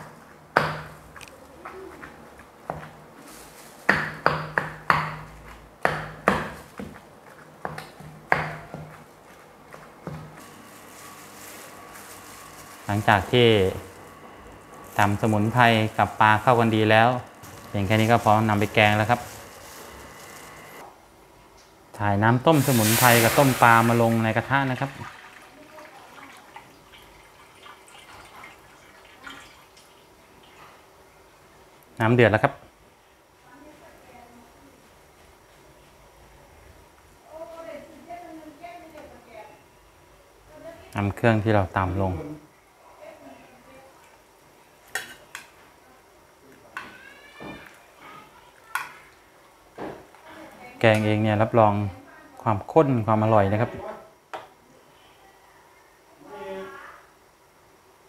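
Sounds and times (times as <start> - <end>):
pestle pounding in stone mortar: 3.9 - 6.9
water pouring into metal wok: 22.5 - 30.6.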